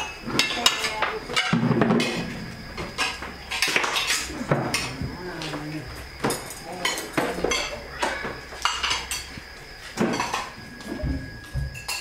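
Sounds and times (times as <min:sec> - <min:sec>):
plates clinking: 0:00.0 - 0:05.6, 0:06.2 - 0:09.4, 0:10.0 - 0:12.0.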